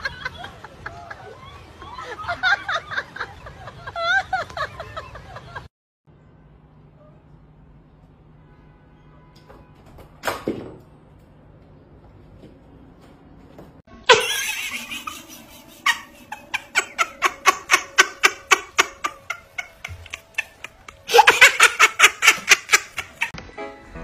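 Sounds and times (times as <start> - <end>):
person laughing: 14.1 - 23.4.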